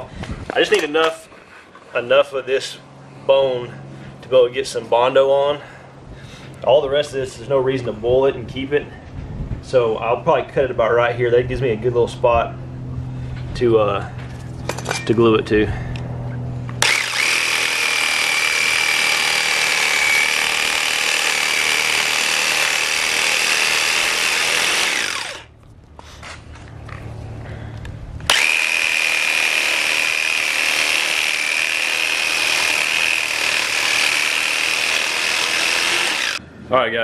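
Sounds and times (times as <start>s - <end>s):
jigsaw sawing through horn: 16.8s - 25.5s, 28.3s - 36.4s.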